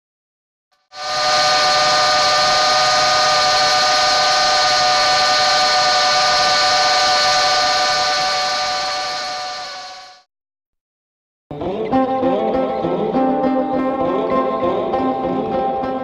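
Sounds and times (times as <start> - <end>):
quadcopter motors whining: 1.0 - 10.2.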